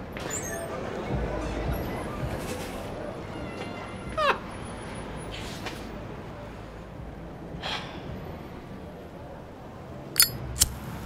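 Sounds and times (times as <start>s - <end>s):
low street hum: 0.0s - 11.0s
lighter metallic clicks: 10.2s - 10.8s.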